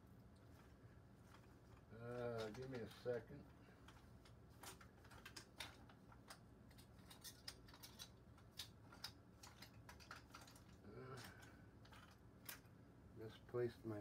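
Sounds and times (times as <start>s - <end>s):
painting tools clicking and tapping: 3.8s - 12.7s.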